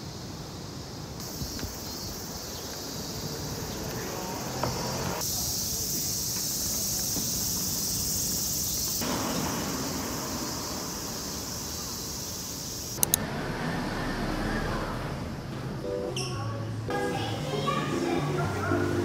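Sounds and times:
cicadas buzzing: 0:00.0 - 0:15.1.

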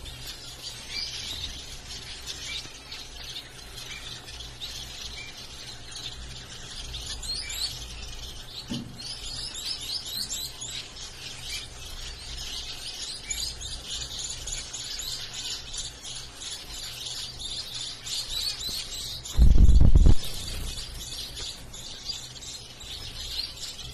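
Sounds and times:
zebra finches chirping: 0:00.0 - 0:23.9
loud low thump: 0:19.3 - 0:20.5.

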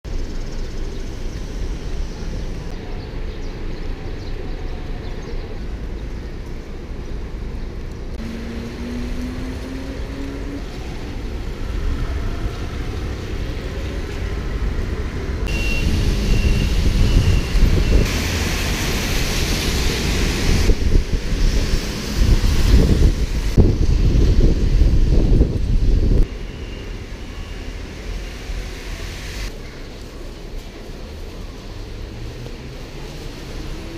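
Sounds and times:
traffic on wet roads: 0:00.4 - 0:33.9
wind buffeting microphone: 0:09.0 - 0:26.3.

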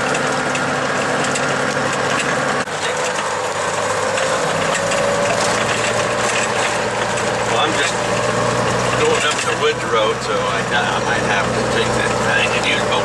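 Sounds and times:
mechanical rattle: 0:00.0 - 0:09.7
truck engine running: 0:00.0 - 0:13.0.

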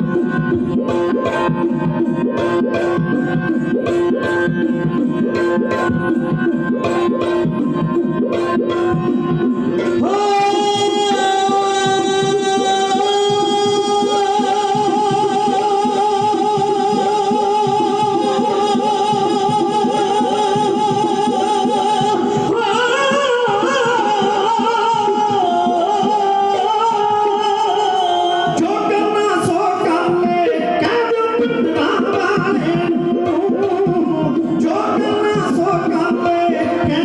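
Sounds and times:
harmonium long notes: 0:00.0 - 0:37.0.

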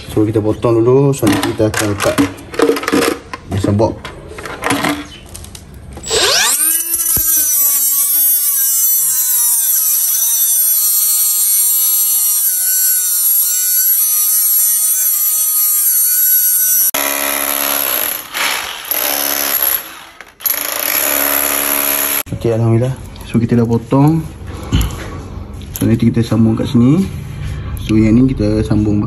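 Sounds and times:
angle grinder cutting concrete: 0:06.0 - 0:19.8.

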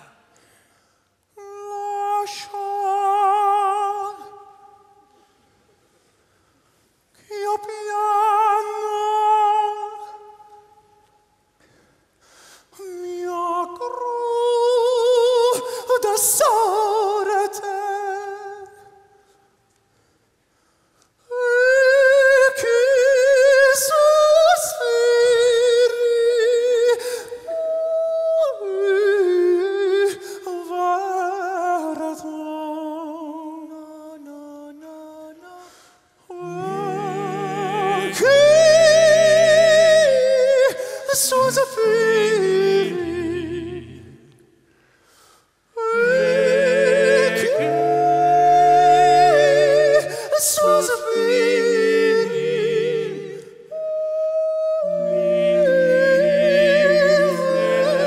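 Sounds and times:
high male voices singing: 0:36.3 - 0:44.3, 0:45.9 - 0:53.5, 0:54.8 - 0:58.0
low bass voices in harmony: 0:36.4 - 0:40.2, 0:46.0 - 0:53.4.

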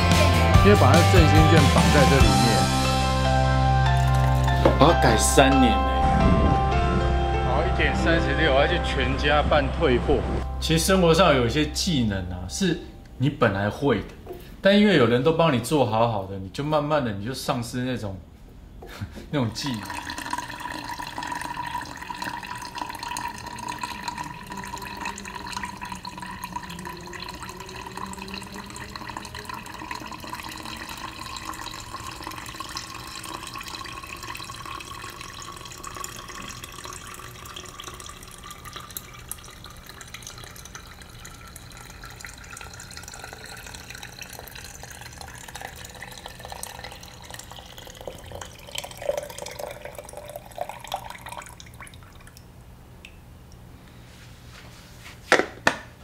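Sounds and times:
water pouring into glass pitcher: 0:03.8 - 0:07.0, 0:19.4 - 0:53.6.

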